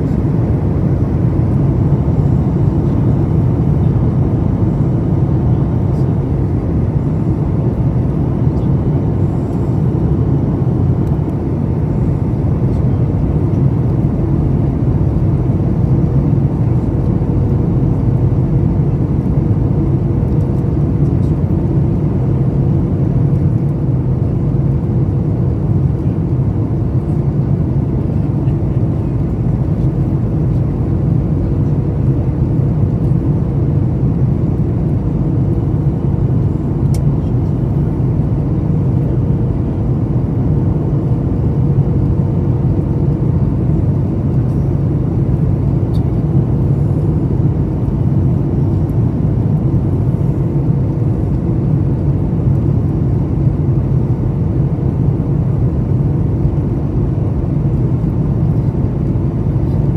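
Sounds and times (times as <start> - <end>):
jet engines and airflow rushing: 0.0 - 59.9.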